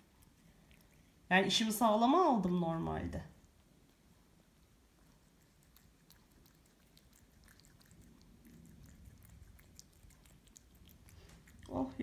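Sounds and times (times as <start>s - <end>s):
cat wet chewing clicks: 4.6s - 11.8s.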